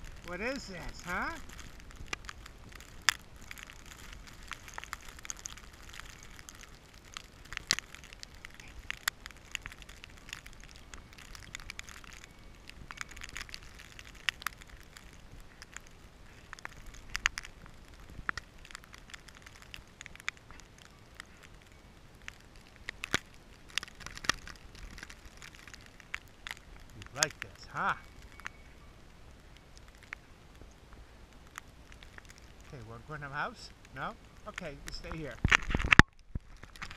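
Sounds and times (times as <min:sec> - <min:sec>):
snow pelting camera: 0:00.0 - 0:21.4
low wind rumble: 0:00.0 - 0:36.9.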